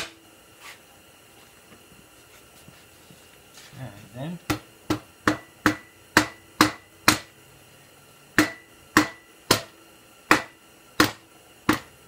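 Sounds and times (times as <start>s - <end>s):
hammer striking metal: 4.5s - 7.3s, 8.4s - 9.7s, 10.3s - 11.9s.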